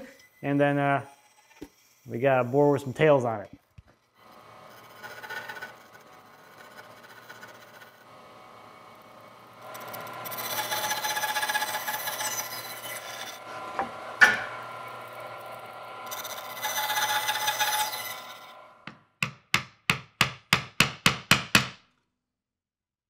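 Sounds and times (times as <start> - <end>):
bandsaw cutting wood: 0.0 - 19.0
mallet striking chisel: 18.8 - 21.8.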